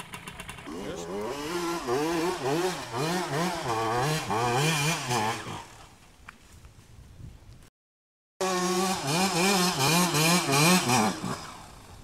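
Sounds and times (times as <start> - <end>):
dirt bike engine revving: 0.0 - 5.8, 8.4 - 12.0.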